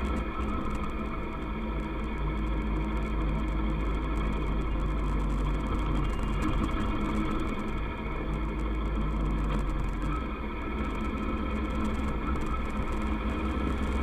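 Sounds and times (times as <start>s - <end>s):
low rumble: 0.0s - 14.0s.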